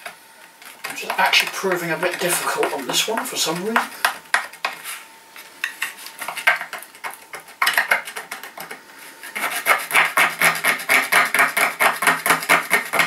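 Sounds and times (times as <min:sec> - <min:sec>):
screwdriver scraping paint off metal: 0:09.4 - 0:13.0.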